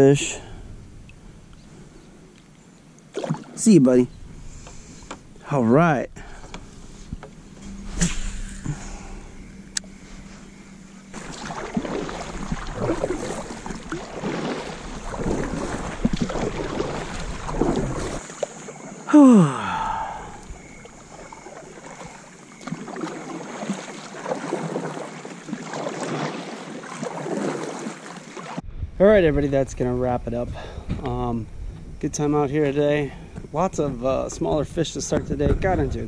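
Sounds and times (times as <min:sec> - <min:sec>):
paddle splashing in water: 0:03.1 - 0:03.6, 0:11.1 - 0:19.1, 0:20.3 - 0:28.6.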